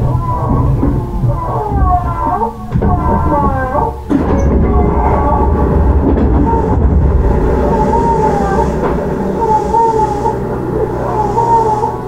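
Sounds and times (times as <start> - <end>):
train wheels rumbling on rail: 0.0 - 12.0
wavering inverter whine: 3.8 - 12.0.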